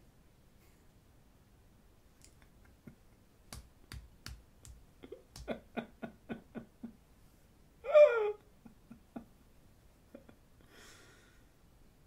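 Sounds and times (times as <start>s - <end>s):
man chuckling and laughing: 5.0s - 7.0s, 7.8s - 9.4s.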